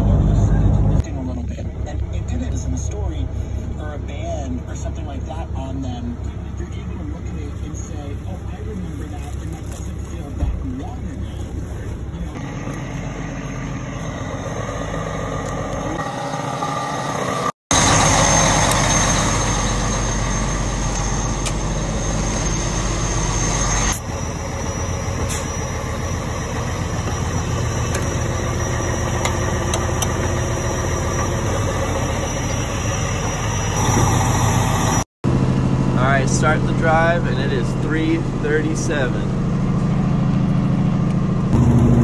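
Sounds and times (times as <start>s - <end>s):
vehicle engine idling: 0.0s - 42.0s
thin high whine: 12.2s - 35.1s.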